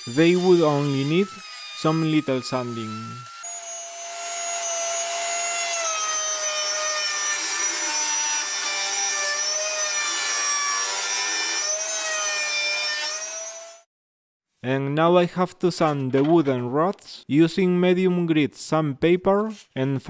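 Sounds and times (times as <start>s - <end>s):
router high whine: 0.0s - 5.3s.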